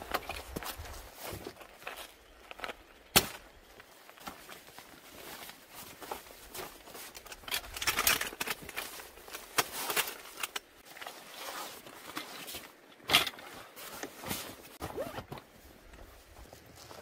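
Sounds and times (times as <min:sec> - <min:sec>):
nylon bags rustling: 0:03.8 - 0:17.0.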